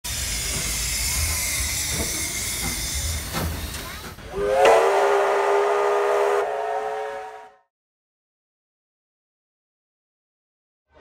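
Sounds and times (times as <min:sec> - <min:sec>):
steam hissing: 0:00.0 - 0:07.4
steam whistle blast: 0:04.3 - 0:07.7.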